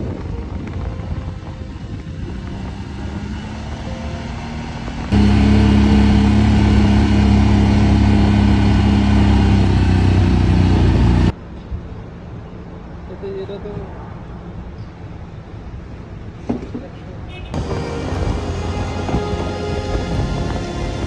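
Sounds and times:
atv engine droning: 0.0 - 11.3, 17.6 - 21.0.

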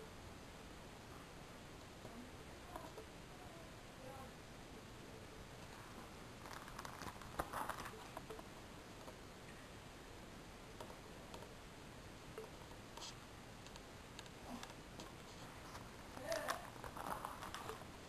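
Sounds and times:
plastic binder sleeves crinkling: 6.4 - 8.3, 15.0 - 18.0.

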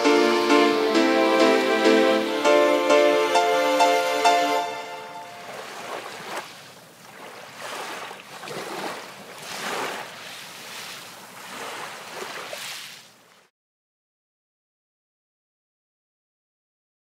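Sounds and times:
waves washing: 0.0 - 13.5.

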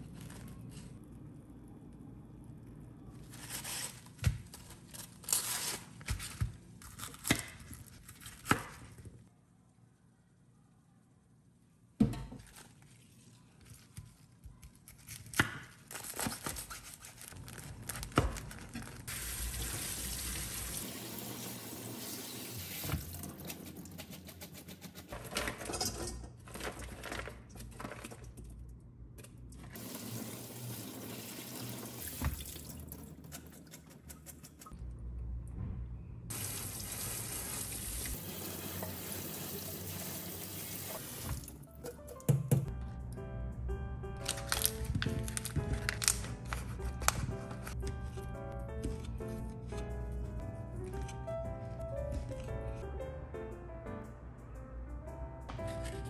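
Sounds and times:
tap water running into sink: 29.8 - 33.0, 36.3 - 41.5.

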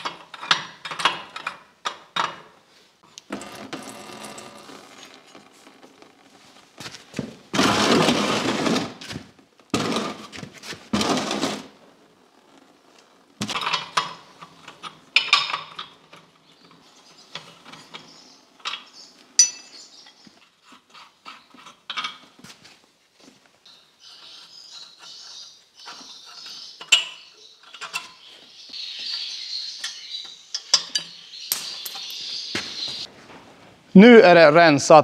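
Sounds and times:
short metal clinks: 19.4 - 19.8.

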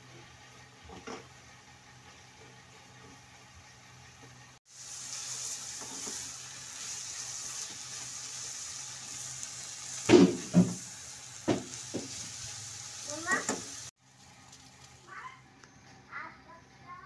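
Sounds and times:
meat sizzling in a frying pan: 4.6 - 15.2.

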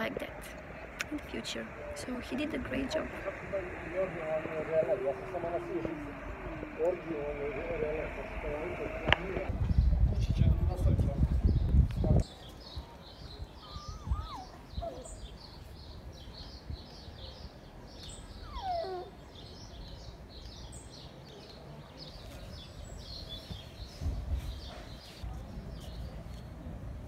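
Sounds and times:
wind rumble on microphone: 9.1 - 17.5, 22.5 - 27.0
small birds chirping: 11.4 - 26.7.

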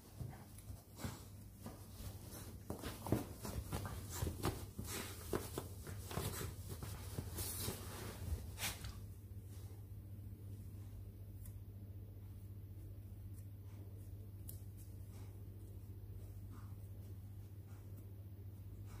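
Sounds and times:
scratching and rustling fabric: 0.0 - 9.7
steady low hum: 0.0 - 19.0.

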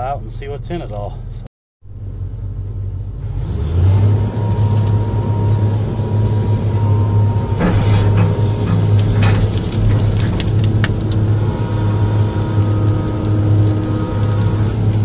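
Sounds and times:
excavator diesel engine revving: 1.9 - 15.0
hydraulic whine: 3.2 - 15.0.

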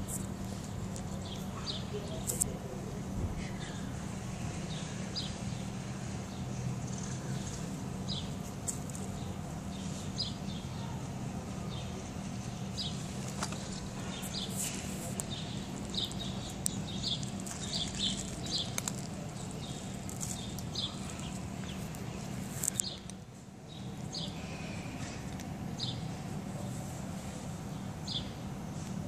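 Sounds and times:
small birds chirping: 0.0 - 28.5
steady low hum: 0.0 - 29.0
cat crunching dry kibble: 13.2 - 23.2.

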